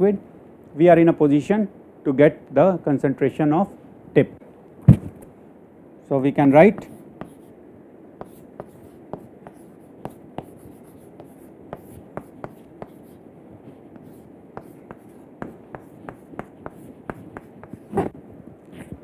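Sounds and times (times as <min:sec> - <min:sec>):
chalk tapping and scratching on board: 0:06.6 - 0:07.5, 0:08.2 - 0:18.2.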